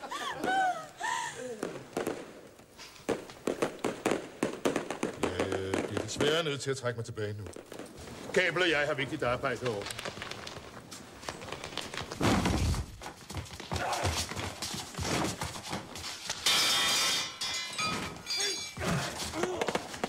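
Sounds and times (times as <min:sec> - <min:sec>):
ringing metallic clatter: 0:16.4 - 0:19.1
person grunting: 0:18.8 - 0:19.8.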